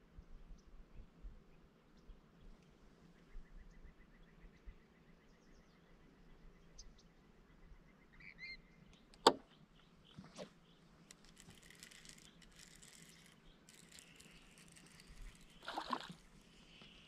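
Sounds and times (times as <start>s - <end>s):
fishing reel click: 11.1s - 16.2s
fishing reel rattle: 11.1s - 16.4s.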